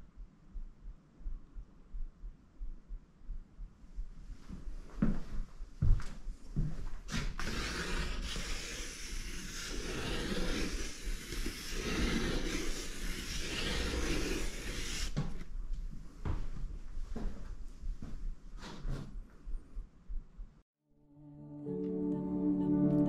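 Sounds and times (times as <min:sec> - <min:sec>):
charcoal scratching on paper: 0:07.1 - 0:15.2.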